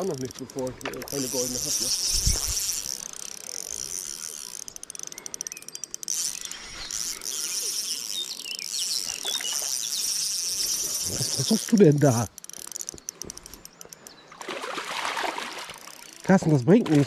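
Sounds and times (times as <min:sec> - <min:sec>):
fishing reel ratchet clicks: 0:00.0 - 0:14.2, 0:15.7 - 0:16.7
insects chirring: 0:00.0 - 0:17.0.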